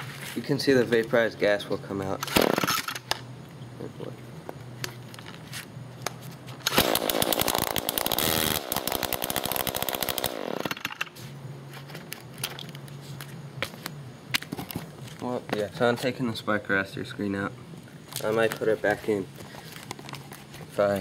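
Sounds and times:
string trimmer engine revving: 6.7 - 10.9.

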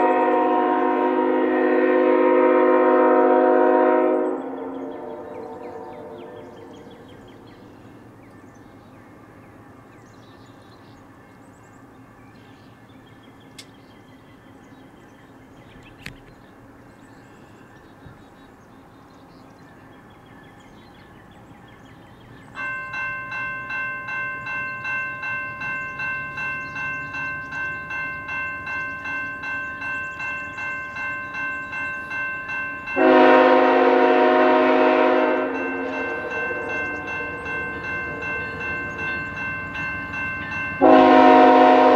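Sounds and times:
locomotive air horn blast: 0.0 - 6.6, 33.0 - 37.3, 40.8 - 41.9
crossing warning bell ringing: 0.0 - 8.1, 22.3 - 41.9
distant freight train: 0.0 - 41.9.

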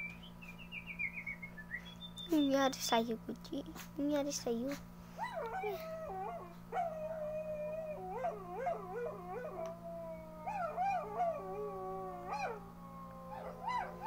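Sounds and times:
small dog howling and whining: 5.1 - 14.0.

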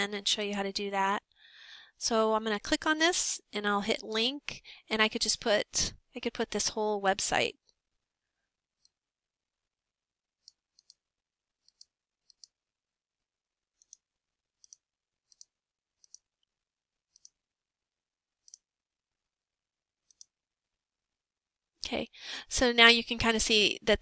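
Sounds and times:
computer mouse clicks: 8.8 - 9.0, 10.4 - 11.0, 11.6 - 12.6, 13.8 - 16.3, 17.1 - 17.4, 18.4 - 18.7, 20.0 - 20.4.

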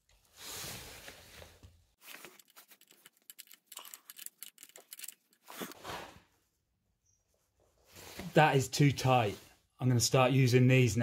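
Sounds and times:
soft rustling of handling: 0.0 - 5.9.

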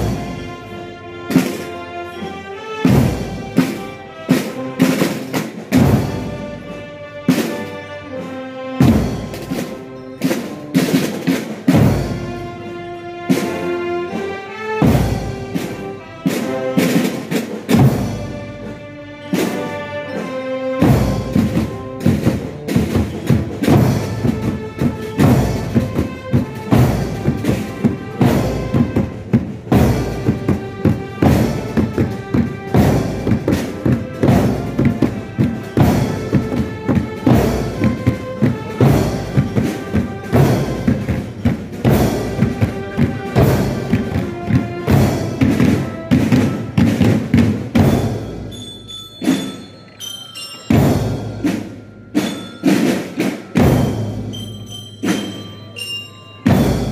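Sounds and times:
marching band playing: 0.0 - 56.9
bass drums beating: 21.0 - 48.5.

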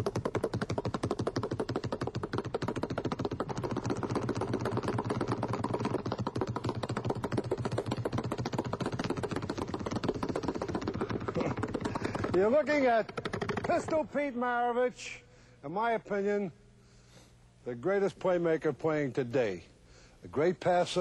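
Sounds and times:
basketball dribbling on hardwood floor: 0.0 - 12.4.

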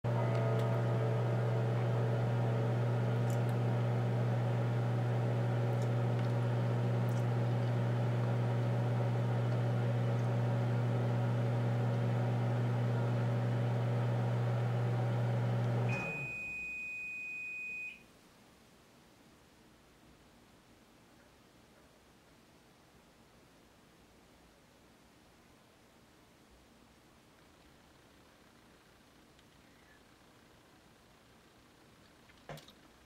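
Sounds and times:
household appliance humming: 0.0 - 16.5.

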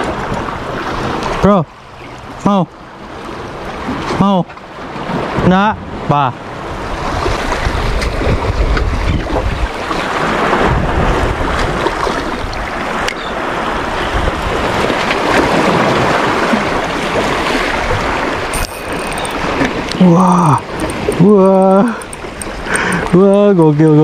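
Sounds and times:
waves splashing against rocks: 3.1 - 24.0
wind buffeting microphone: 6.6 - 12.7.

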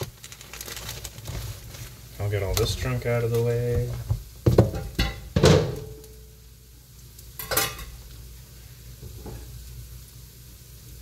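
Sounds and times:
kitchenware clattering: 3.9 - 6.0, 7.4 - 8.0.

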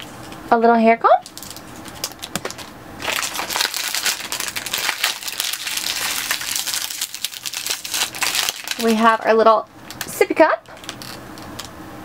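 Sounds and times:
plastic bag crinkling: 1.2 - 11.7.

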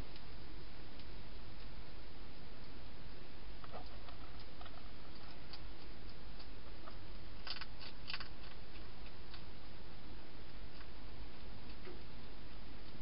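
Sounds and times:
hedgehog crunching dry food: 3.6 - 9.5.

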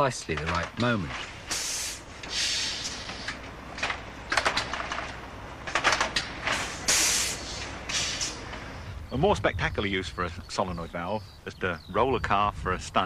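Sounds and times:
low steady machine rumble: 0.0 - 13.0
compressed air hissing blasts: 1.3 - 3.4, 6.4 - 8.9
machine clicks: 3.3 - 6.6.

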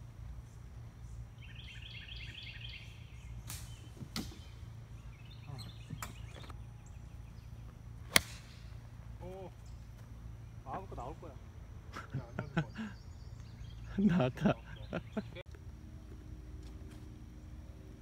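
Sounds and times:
low outdoor hum: 0.0 - 18.0
bird chirping: 0.3 - 11.2, 12.1 - 15.4
golf club striking ball: 8.0 - 8.8.

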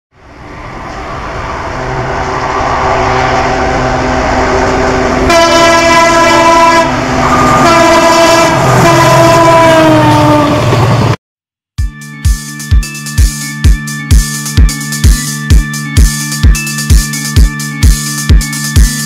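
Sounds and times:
train rumble: 0.1 - 11.2
locomotive horn blasts: 1.8 - 10.6.

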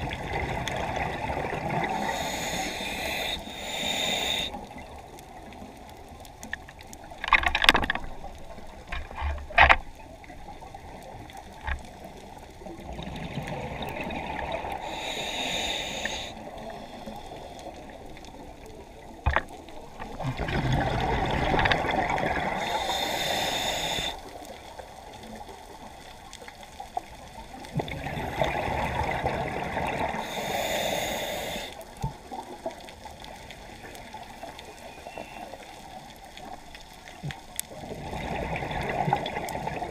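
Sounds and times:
regulator hissing inhalation: 1.8 - 4.6, 14.8 - 17.6, 22.6 - 24.3, 30.2 - 31.8
bubbling exhalation: 20.1 - 22.6.

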